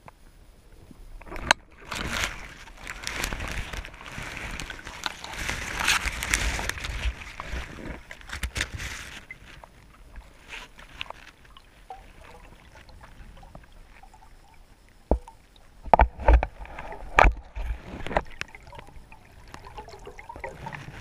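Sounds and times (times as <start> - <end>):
underwater rushing and sloshing: 0.3 - 21.0.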